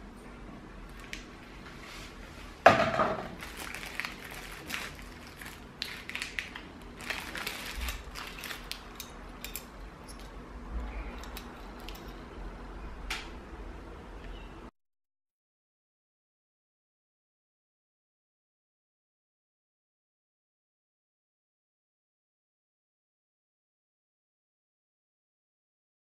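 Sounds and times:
plastic bags crinkling: 0:03.2 - 0:09.7
screws and clips clicking: 0:07.0 - 0:12.2.

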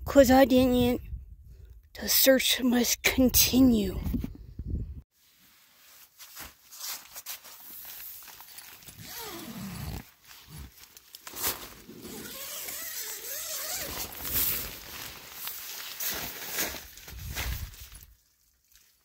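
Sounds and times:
tent fabric rustling: 0:05.1 - 0:18.2.

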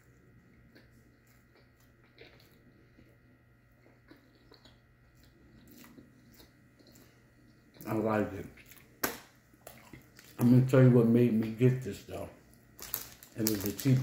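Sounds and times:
faint chewing: 0:00.0 - 0:10.5
low steady hum: 0:00.0 - 0:14.0.

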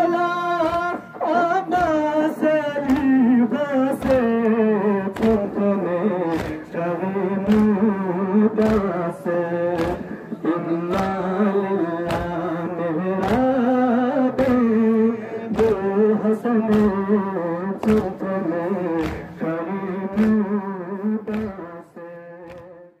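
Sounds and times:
men chanting a lament: 0:00.0 - 0:23.0
hands slapping chests: 0:00.2 - 0:22.9.

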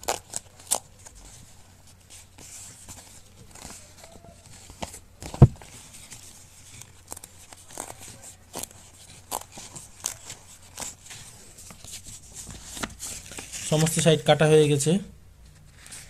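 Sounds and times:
paper tearing and crinkling: 0:00.0 - 0:14.1
loud thump: 0:05.4 - 0:05.6.

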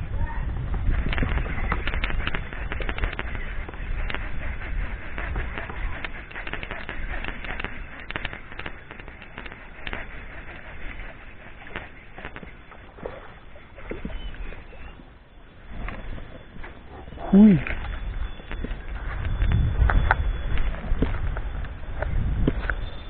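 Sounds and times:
wind rumble on microphone: 0:00.0 - 0:23.0
fishing reel clicking: 0:01.0 - 0:12.5.

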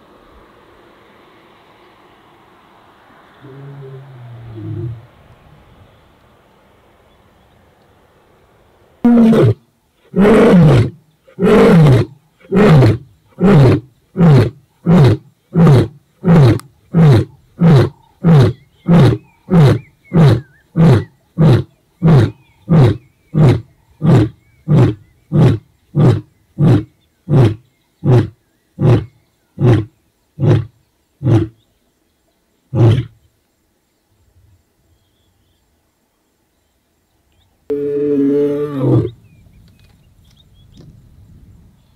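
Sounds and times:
lion grunting roars: 0:03.4 - 0:05.1, 0:37.7 - 0:39.2
lion roaring: 0:03.4 - 0:05.1, 0:09.0 - 0:31.6, 0:37.7 - 0:39.2.

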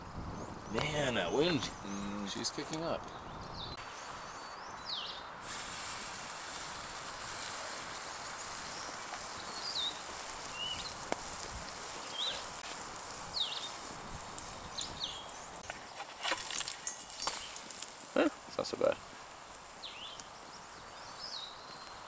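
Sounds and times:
bird chirping: 0:00.3 - 0:05.4, 0:07.8 - 0:11.0, 0:12.0 - 0:12.6, 0:13.3 - 0:13.8, 0:14.4 - 0:18.8, 0:19.8 - 0:22.0
batter sizzling in frying pan: 0:05.4 - 0:22.0.

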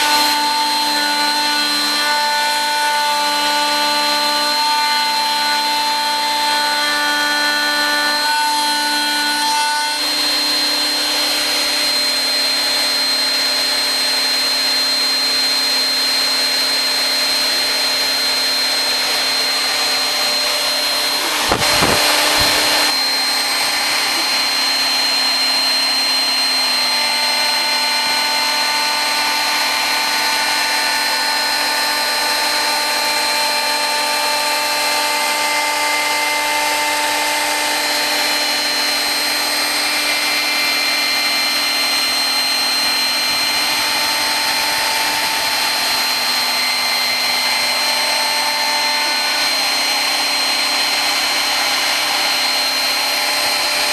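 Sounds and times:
router spindle high whine: 0:00.0 - 0:53.9
wood cutting noise: 0:00.0 - 0:53.9
motor tones shifting in pitch: 0:15.5 - 0:25.3
loud noisy burst: 0:17.5 - 0:26.8.

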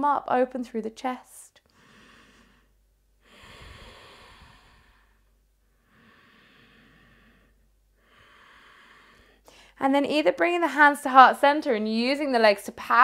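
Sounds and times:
woman breathing slowly: 0:01.6 - 0:09.8.

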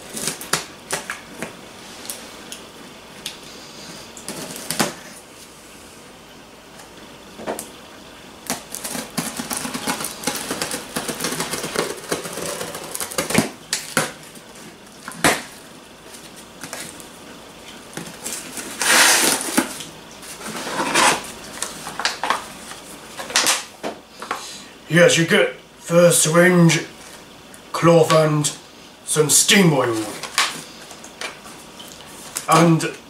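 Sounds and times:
plastic packaging rustling: 0:08.5 - 0:15.4.

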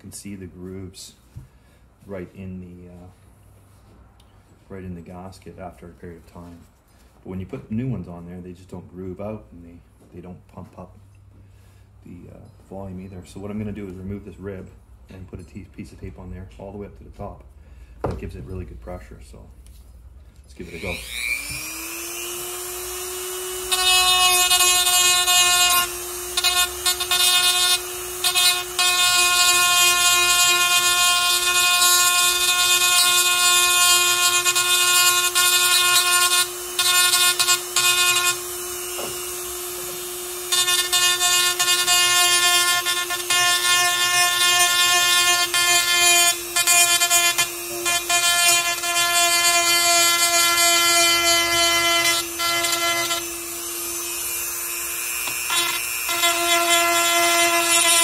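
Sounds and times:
rotary tool whining: 0:20.6 - 0:58.0.

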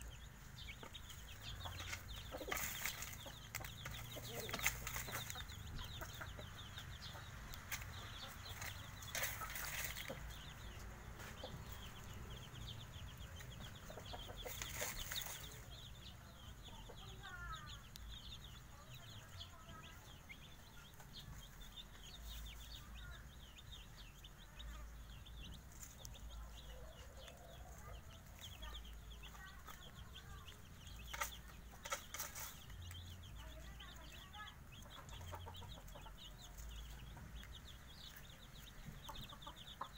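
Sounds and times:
hen clucking: 0:00.0 - 0:18.1, 0:24.3 - 0:39.9
chicks peeping: 0:00.0 - 0:39.9
rustles in dry leaves: 0:01.8 - 0:05.6, 0:07.7 - 0:10.6, 0:14.4 - 0:15.7.

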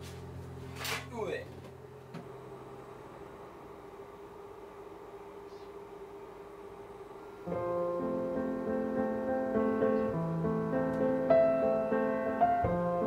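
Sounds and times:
faint steady hum: 0:00.0 - 0:13.0
gentle piano music: 0:07.5 - 0:13.0.

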